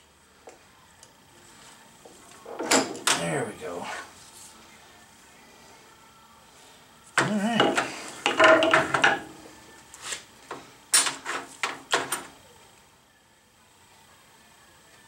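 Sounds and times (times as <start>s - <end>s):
metal parts scraping and clattering: 7.2s - 9.4s.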